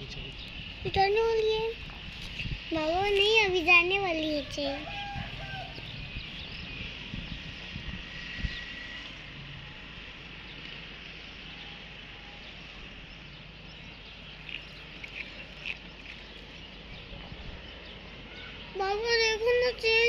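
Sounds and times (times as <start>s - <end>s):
insects hissing: 0.0s - 16.9s
bird chirps: 11.5s - 18.8s.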